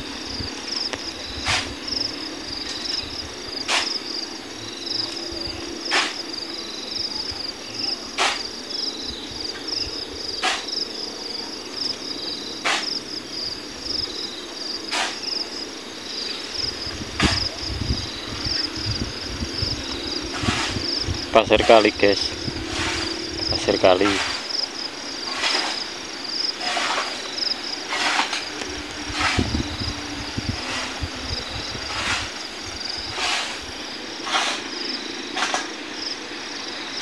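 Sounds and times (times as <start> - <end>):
insects chirring: 0.0 - 37.0
sand thrown into truck bed: 3.7 - 4.0, 8.2 - 8.4, 12.6 - 12.9, 14.9 - 15.2, 25.3 - 25.9, 26.6 - 27.2, 27.9 - 28.5, 33.1 - 33.6, 34.2 - 34.7.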